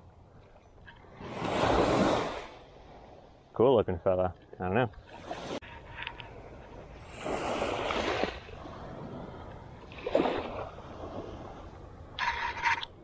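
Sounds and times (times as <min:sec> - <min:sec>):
small waves washing on sand: 0:01.1 - 0:03.2, 0:05.0 - 0:12.3.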